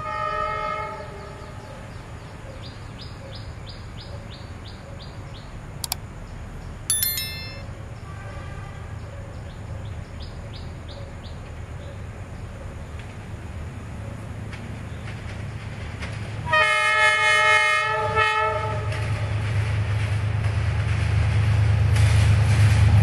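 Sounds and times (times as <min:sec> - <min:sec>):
bright ding: 0:06.9 - 0:07.6
sharp click: 0:06.9 - 0:07.6.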